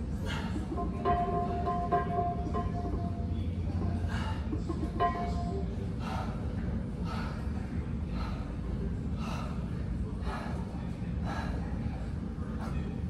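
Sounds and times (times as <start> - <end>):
low hum of gym noise: 0.0 - 13.0
person breathing hard: 0.2 - 0.7, 5.9 - 8.6, 9.2 - 11.8.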